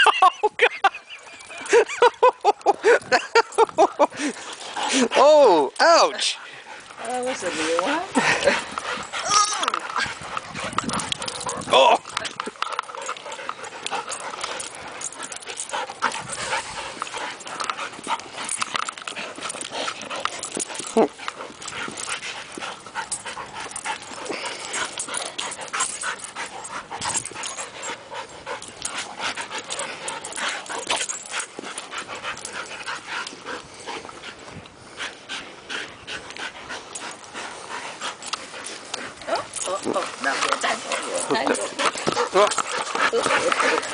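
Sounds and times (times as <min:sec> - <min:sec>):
dogs scuffling and mouthing: 0:00.0 - 0:43.9
dog crying: 0:09.0 - 0:10.2.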